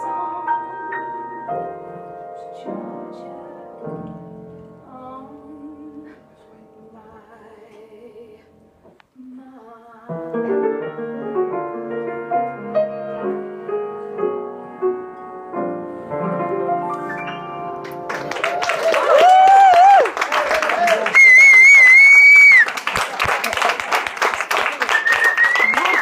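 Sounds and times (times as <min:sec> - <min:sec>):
piano music: 0:00.0 - 0:08.9, 0:10.1 - 0:19.6.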